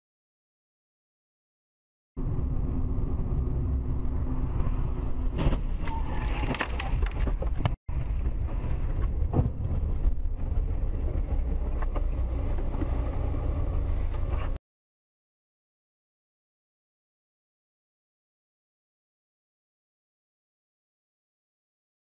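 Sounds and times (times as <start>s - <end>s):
car engine and road noise: 2.2s - 14.6s.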